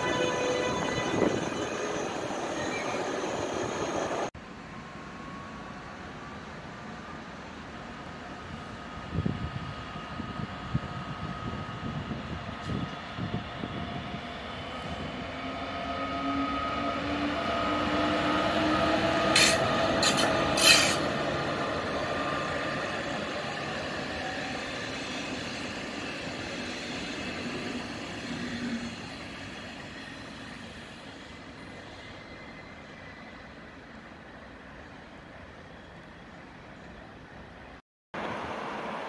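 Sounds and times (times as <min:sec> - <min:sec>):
electric locomotive whine: 0:00.0 - 0:39.0
train wheels rumbling on rails: 0:07.8 - 0:33.2.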